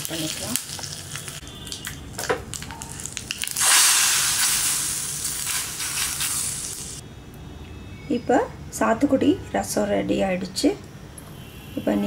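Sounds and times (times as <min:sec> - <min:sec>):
hot oil sizzling in liquid: 0:00.0 - 0:07.0
seeds crackling in hot oil: 0:00.0 - 0:07.0.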